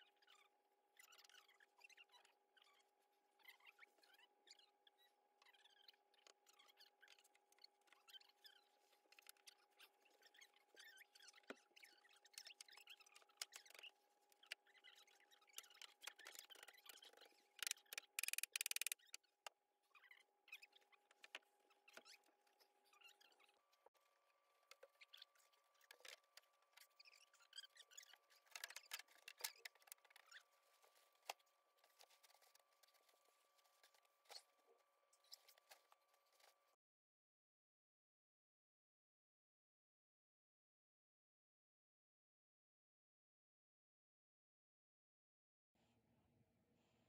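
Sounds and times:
small squeaks: 0.0 - 36.6
faint scattered clicks: 17.6 - 19.2.

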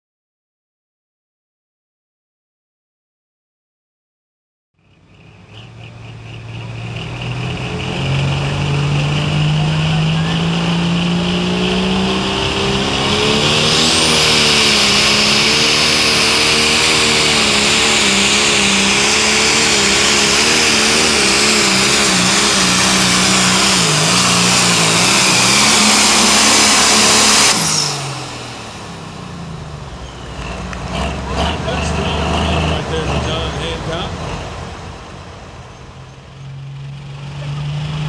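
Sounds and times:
diesel engine running flat out: 4.8 - 38.0
high turbo whistle: 6.6 - 30.7.

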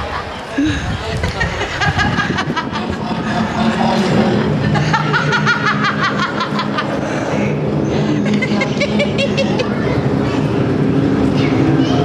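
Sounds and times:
steady low hum: 0.4 - 12.0
person laughing: 0.6 - 7.2, 8.1 - 9.8.

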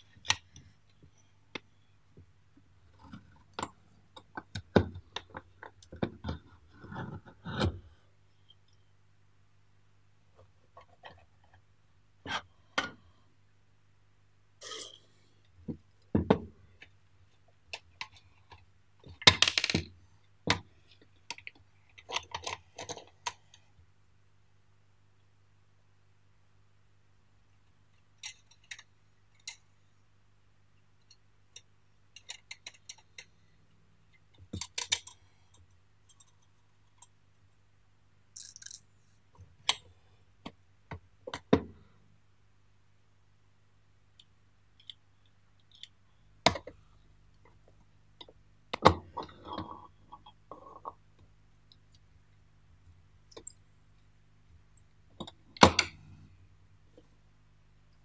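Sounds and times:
metal parts and tools clicking: 38.4 - 38.9, 53.3 - 53.7.

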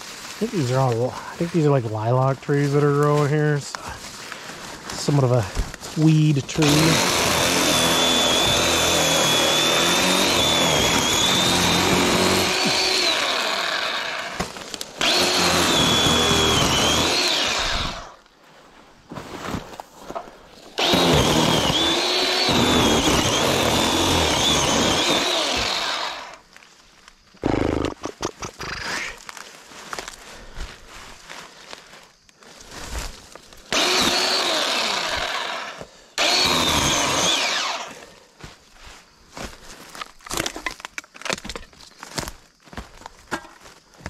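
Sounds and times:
chainsaw cutting wood: 6.3 - 18.2, 20.8 - 26.5, 27.4 - 28.7, 33.7 - 38.0.

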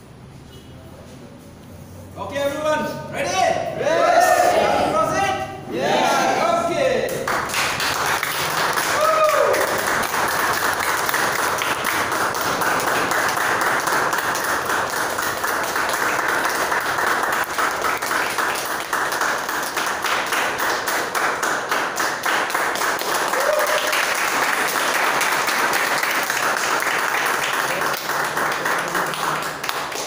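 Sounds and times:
people applauding: 7.1 - 30.0.

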